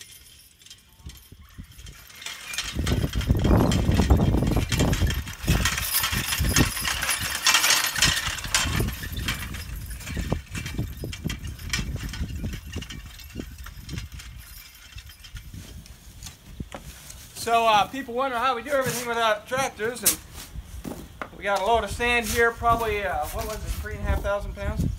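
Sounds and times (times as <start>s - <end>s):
harness metallic clinks and rattles: 0.0s - 24.8s
horse hoof falls: 20.8s - 21.4s.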